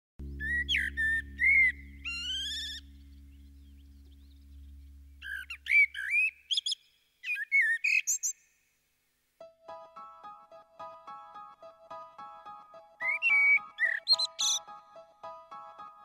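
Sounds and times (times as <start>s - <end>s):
low hum: 0.2s - 6.0s
fluting birdsong: 0.2s - 8.4s, 12.6s - 15.1s.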